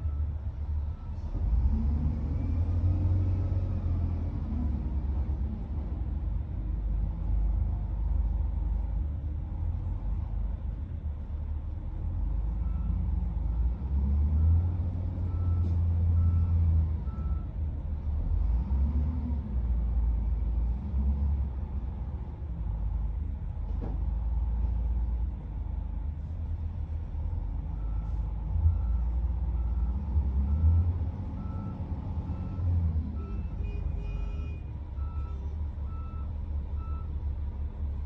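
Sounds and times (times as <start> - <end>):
diesel engine revving: 0.0 - 38.0
reversing alarm beeping: 27.7 - 37.1.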